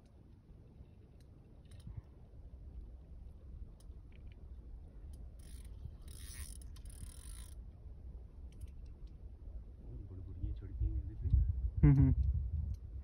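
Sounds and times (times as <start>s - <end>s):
low steady rumble: 1.9s - 13.0s
fishing reel ratcheting and whirring: 5.2s - 7.6s.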